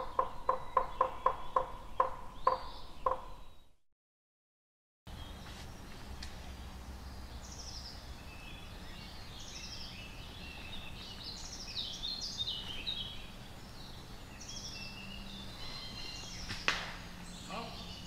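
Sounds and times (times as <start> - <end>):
songbirds singing: 0.0 - 3.8, 5.1 - 18.0
low hum and hiss: 5.1 - 18.0.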